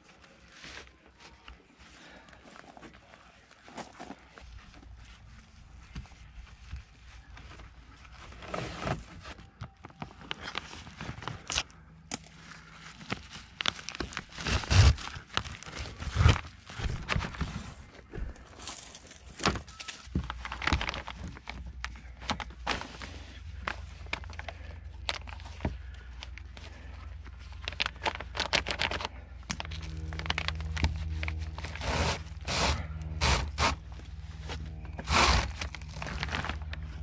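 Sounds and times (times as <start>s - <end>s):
plastic sheeting rustling: 26.7s - 37.0s.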